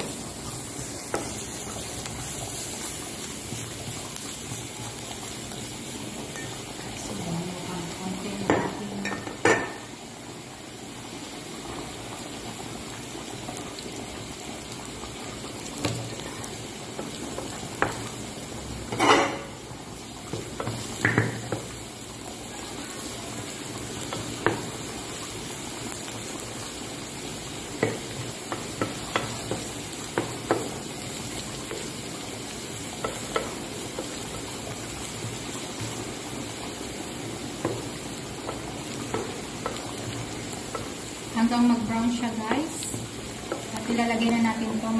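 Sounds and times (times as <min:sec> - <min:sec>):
garlic sizzling in oil: 0:00.0 - 0:44.9
wooden spatula knocking pan: 0:20.3 - 0:21.7, 0:27.8 - 0:30.8, 0:33.0 - 0:34.4.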